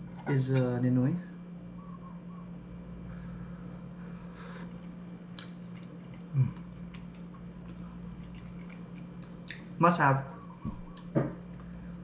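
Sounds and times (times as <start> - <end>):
steady low hum: 0.0 - 12.0
person chewing: 4.5 - 9.8
person humming mm: 6.3 - 6.6.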